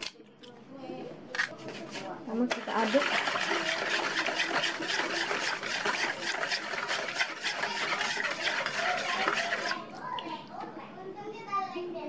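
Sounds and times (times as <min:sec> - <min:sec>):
whisk beating liquid: 0:01.6 - 0:09.9.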